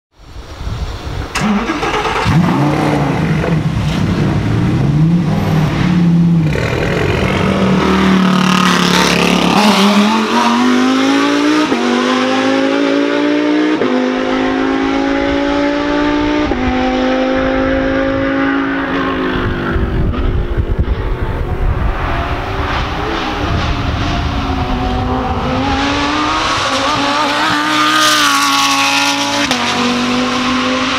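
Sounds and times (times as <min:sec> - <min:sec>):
race car engine revving and accelerating: 0:01.4 - 0:30.9.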